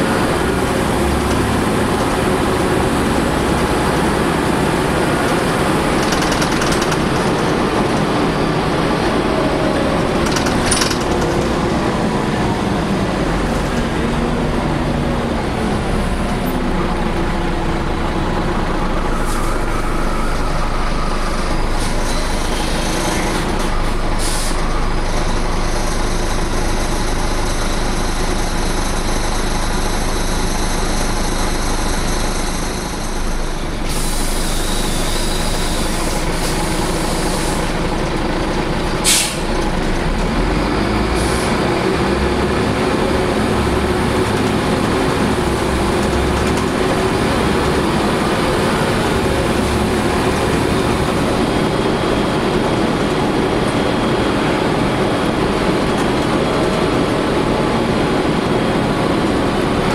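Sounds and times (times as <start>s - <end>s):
bus diesel engine and road noise: 0.0s - 59.9s
short sharp air hiss: 39.0s - 39.5s.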